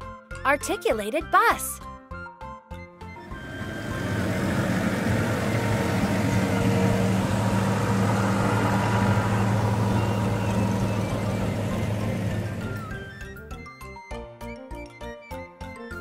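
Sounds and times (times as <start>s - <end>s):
bus engine droning: 3.0s - 13.4s.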